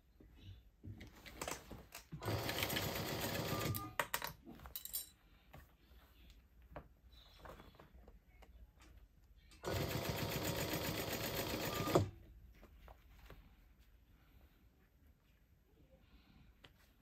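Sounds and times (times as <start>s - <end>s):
faint clicks and rustles of handling: 0.0s - 2.4s, 3.7s - 9.7s, 12.1s - 17.0s
sewing machine stitching: 2.2s - 3.8s, 9.6s - 12.1s.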